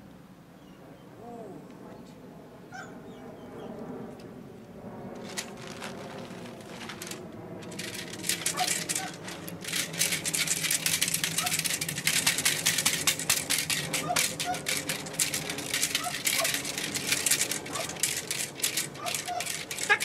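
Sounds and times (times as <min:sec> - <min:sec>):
plastic tarp crackling: 0:05.2 - 0:20.0.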